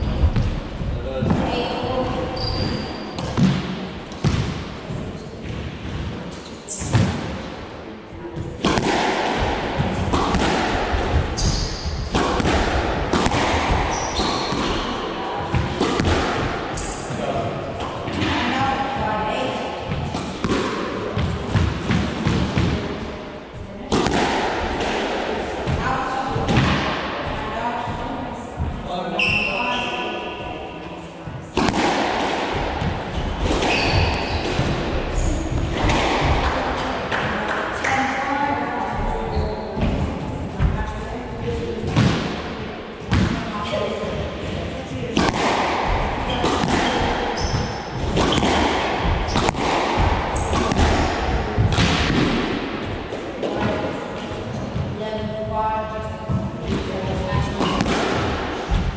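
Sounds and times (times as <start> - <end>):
squash ball cracking off rackets: 8.6 - 16.9, 45.2 - 53.6
shoes squeaking on wooden floor: 11.3 - 12.0, 13.9 - 14.6, 33.7 - 34.4.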